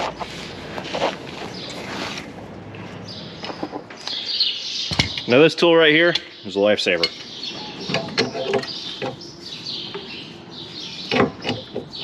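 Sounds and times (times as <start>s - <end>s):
birds chirping: 1.4s - 2.2s, 2.8s - 12.0s
metal clinks and knocks: 7.0s - 9.2s.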